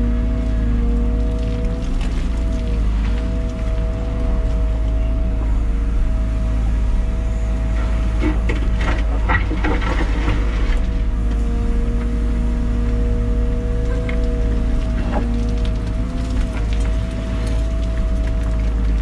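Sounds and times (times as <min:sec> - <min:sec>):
excavator engine and hydraulics whine: 0:00.0 - 0:19.0
bucket scraping dirt and stones: 0:08.3 - 0:11.0.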